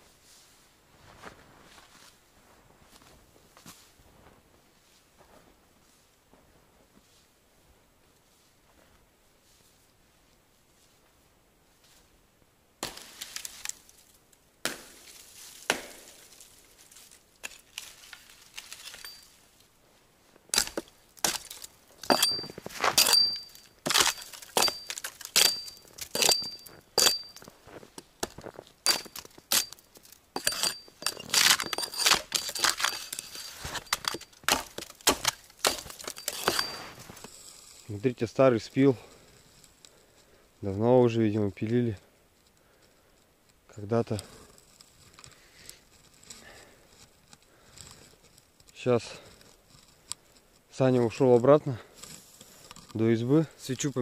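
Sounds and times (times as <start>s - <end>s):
footsteps crunching in snow: 0.0s - 7.4s, 14.9s - 20.4s, 21.3s - 30.1s, 31.0s - 37.9s.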